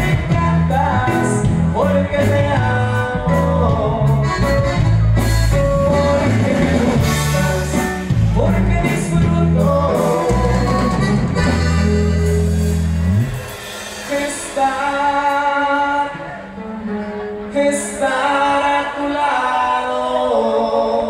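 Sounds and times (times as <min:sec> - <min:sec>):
person singing: 0:00.0 - 0:12.3, 0:13.4 - 0:21.0
drums: 0:00.0 - 0:16.6
heavy bass notes: 0:00.0 - 0:17.5
guitar: 0:00.0 - 0:21.0
button accordion: 0:04.2 - 0:07.8, 0:10.1 - 0:13.7.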